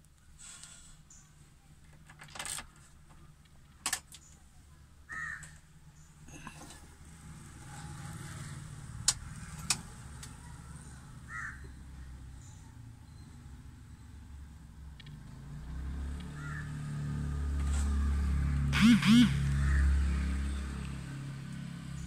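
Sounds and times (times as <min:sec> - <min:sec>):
bird calls: 0:11.2 - 0:14.1.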